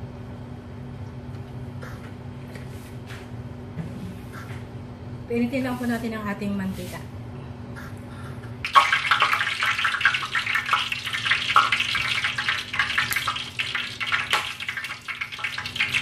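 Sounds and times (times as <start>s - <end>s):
oil crackling in a pan: 8.7s - 16.0s.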